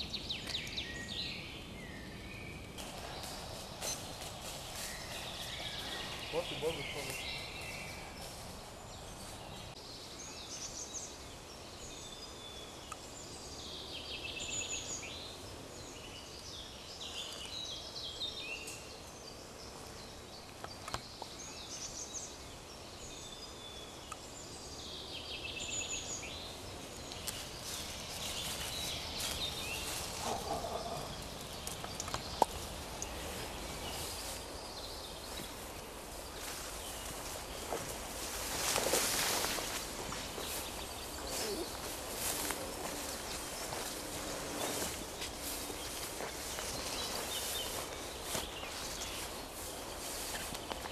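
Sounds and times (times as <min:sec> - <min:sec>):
songbirds singing: 0:00.0 - 0:50.9
crackles and snap of twigs: 0:27.0 - 0:34.5.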